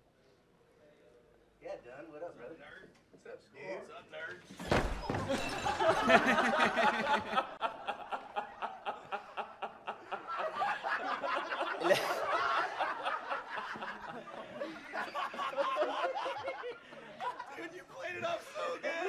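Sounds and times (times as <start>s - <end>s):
group of people laughing: 5.3s - 19.0s.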